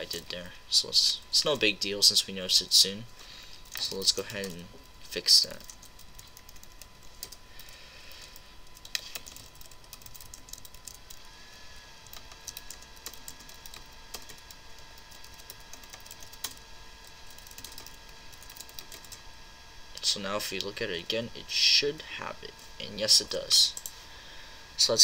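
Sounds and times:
faint high whine: 0.0 - 25.0
typing on computer keyboard: 5.5 - 7.4, 8.7 - 11.2, 12.1 - 16.6, 17.2 - 19.2.

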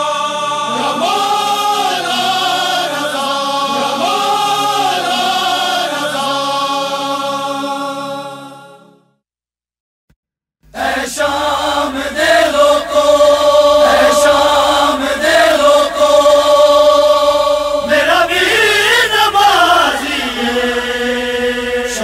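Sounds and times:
chorus chanting drone: 0.0 - 8.9, 10.7 - 22.0
voice singing ornamented line: 10.8 - 22.0.

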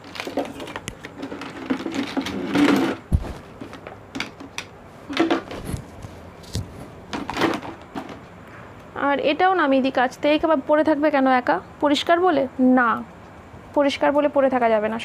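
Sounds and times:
plastic toys clattering: 0.0 - 5.8, 7.1 - 8.3
dull thump: 3.1 - 3.6.

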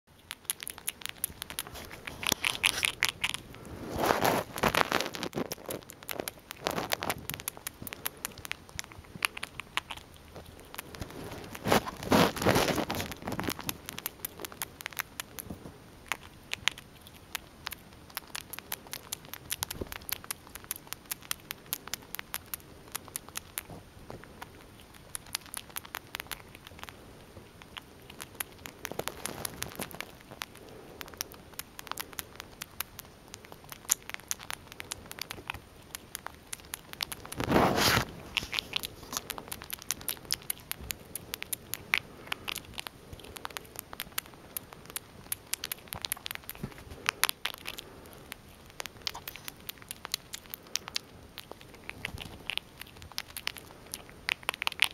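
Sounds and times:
squirrel crunching biscuit: 0.1 - 54.9.

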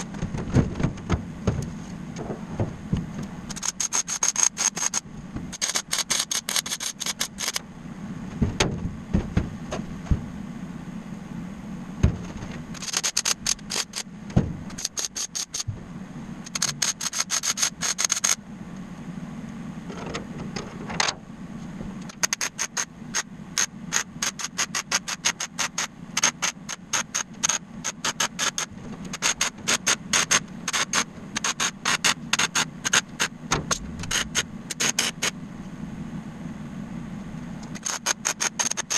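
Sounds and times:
arc welding crackling: 3.5 - 7.6, 12.7 - 14.1, 14.7 - 15.7, 22.0 - 33.3, 34.0 - 35.4, 37.7 - 38.9.

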